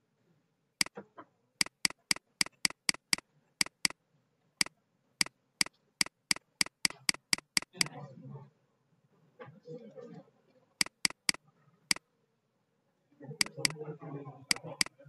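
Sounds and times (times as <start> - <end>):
mouse button clicking: 1.6 - 4.0, 6.0 - 7.9, 10.8 - 11.4, 13.4 - 13.8, 14.5 - 14.9.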